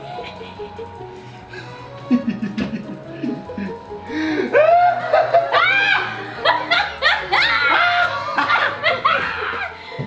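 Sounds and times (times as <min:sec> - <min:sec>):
man and woman laughing: 0:01.6 - 0:03.8, 0:04.5 - 0:09.8.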